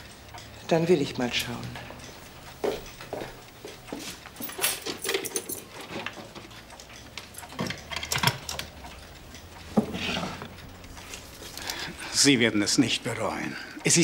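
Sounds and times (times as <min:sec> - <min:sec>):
metal clinks: 0:04.4 - 0:05.9.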